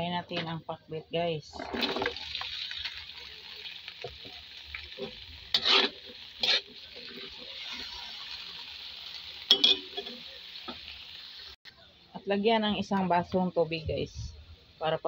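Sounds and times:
vegetables sizzling in oil: 0:01.4 - 0:11.6
scrapes against metal wok: 0:05.0 - 0:08.1.

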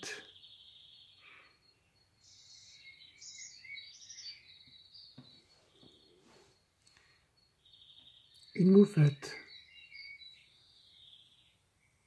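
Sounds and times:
birdsong chirps: 0:00.0 - 0:12.0
insect trill: 0:00.2 - 0:04.8, 0:05.4 - 0:09.7.

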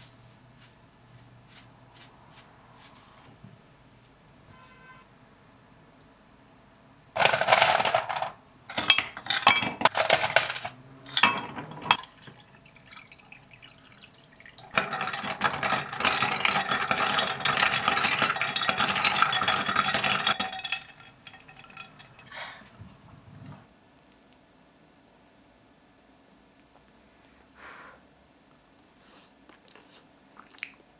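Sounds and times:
spoon stirring against ice and glass: 0:07.2 - 0:12.6, 0:13.2 - 0:22.4
ice cubes clinking: 0:07.2 - 0:22.5
liquid poured into a glass: 0:12.1 - 0:14.8.

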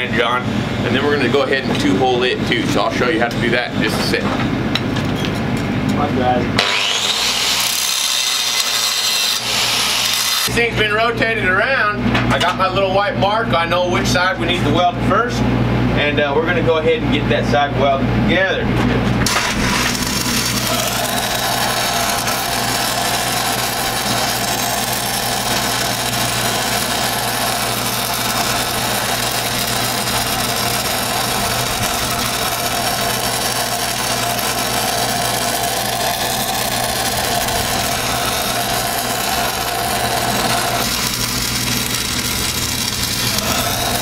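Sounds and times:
welding arc crackling and hissing: 0:06.6 - 0:10.5, 0:19.2 - 0:44.0
engine hum: 0:18.7 - 0:44.0.

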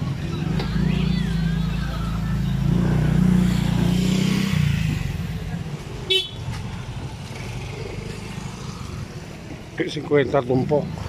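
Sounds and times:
vehicle engine humming: 0:00.0 - 0:11.0.

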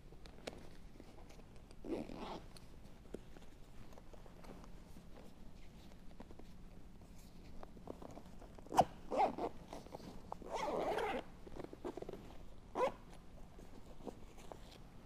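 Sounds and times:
zipper being pulled: 0:01.8 - 0:02.6, 0:08.0 - 0:13.2.

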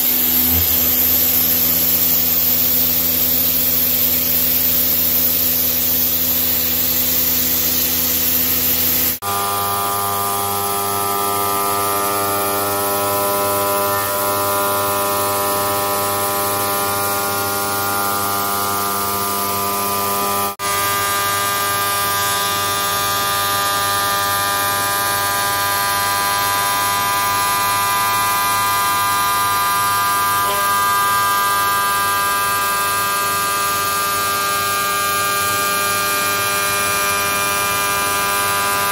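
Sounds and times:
lathe humming and whining: 0:08.5 - 0:38.9.

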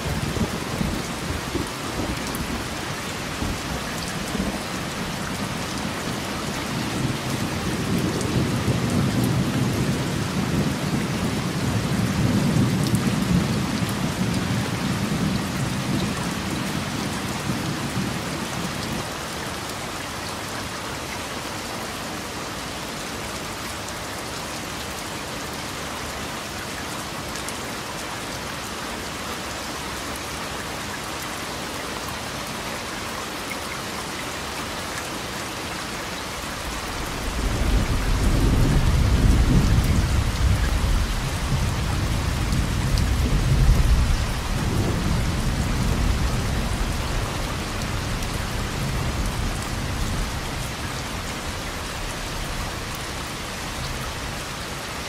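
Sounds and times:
steady rain: 0:00.0 - 0:55.0
rolling thunder: 0:36.6 - 0:50.5.

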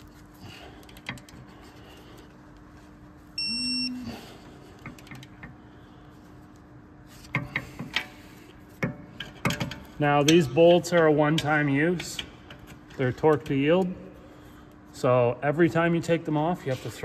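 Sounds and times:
electronic beep: 0:03.4 - 0:04.0.

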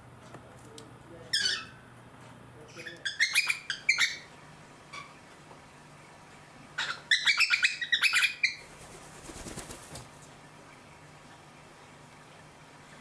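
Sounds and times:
cockatiels chirping: 0:02.7 - 0:04.3, 0:06.8 - 0:08.7
bird wings flapping: 0:08.6 - 0:10.3.

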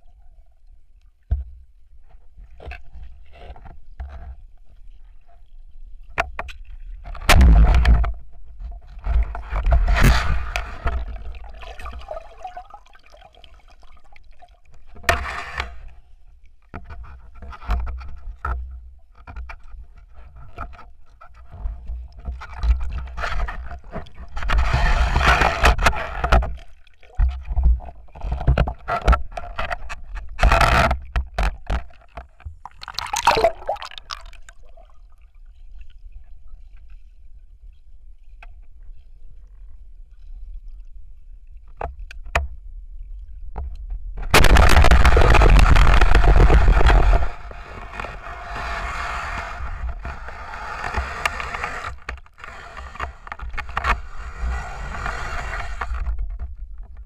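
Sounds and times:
rushing bubbling water: 0:10.4 - 0:14.5, 0:32.6 - 0:35.2, 0:44.3 - 0:47.6
muffled underwater rumble: 0:36.0 - 0:50.7.

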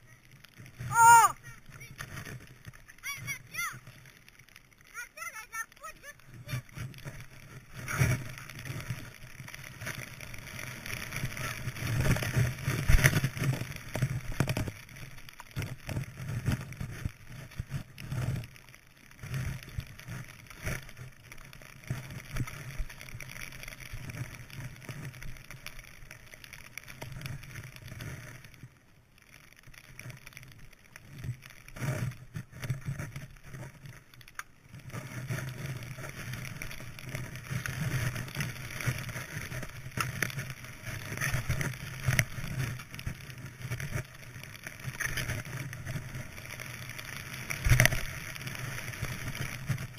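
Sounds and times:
skis hissing through powder snow: 0:00.0 - 0:28.6, 0:34.7 - 0:49.9.

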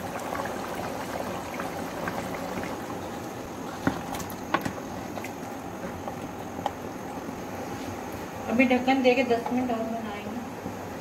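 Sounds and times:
curry bubbling in a pot: 0:00.0 - 0:07.7.

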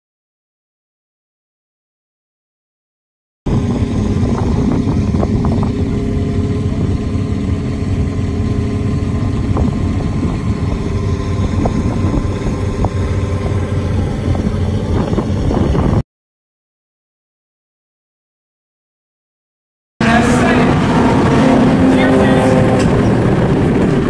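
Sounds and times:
race car engines idling: 0:03.5 - 0:15.9, 0:20.0 - 0:24.0.

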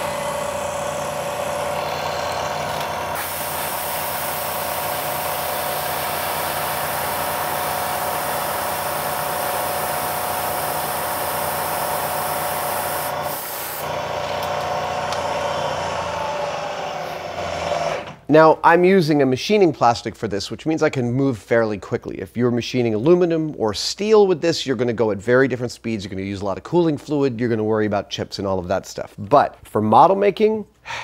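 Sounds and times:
milling machine motor whine: 0:00.0 - 0:18.2.

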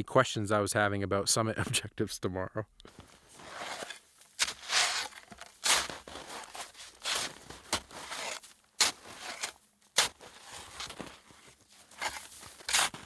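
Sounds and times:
shovel scooping snow: 0:03.0 - 0:13.0.

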